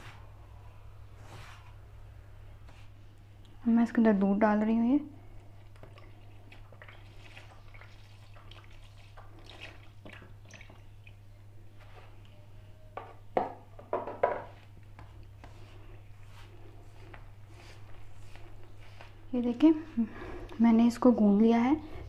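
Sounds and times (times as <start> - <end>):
steady low hum: 0.0 - 22.0
milk pouring into bowl: 5.4 - 11.2.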